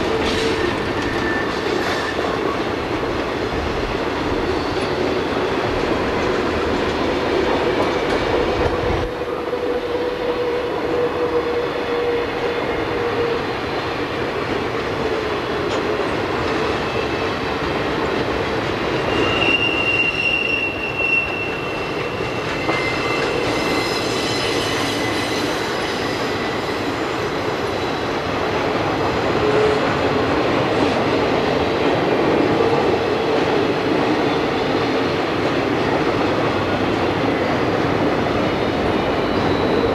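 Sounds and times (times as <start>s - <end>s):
steel wheels squealing: 0.0s - 2.8s, 4.2s - 6.6s, 18.8s - 28.3s, 37.0s - 39.9s
freight train rumbling past: 0.0s - 39.9s.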